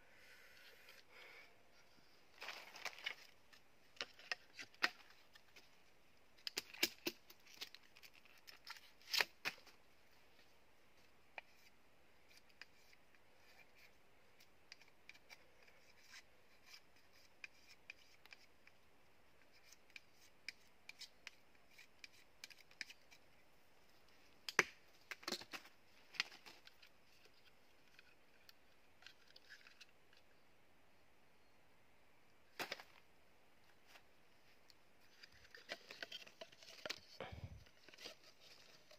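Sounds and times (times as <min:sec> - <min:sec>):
knife scraping bamboo: 0:14.7 - 0:18.5, 0:19.4 - 0:23.3.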